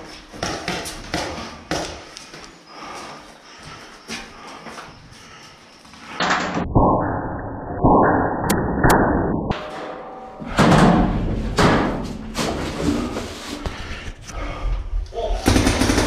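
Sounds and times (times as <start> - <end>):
rumbling noise: 6.2 - 15.1.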